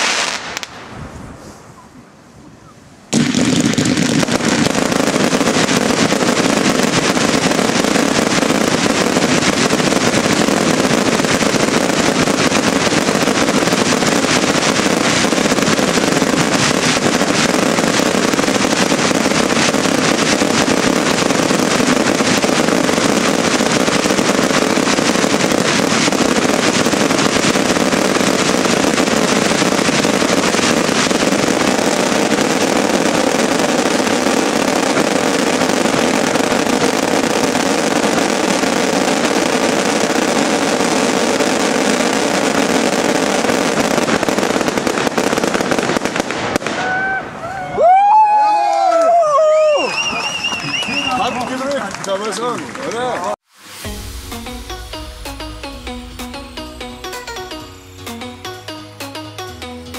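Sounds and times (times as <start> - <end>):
aerial firework bursts and crackle: 0.0 - 1.6, 3.1 - 52.5, 53.1 - 58.2
ground fountain fireworks: 0.0 - 59.8.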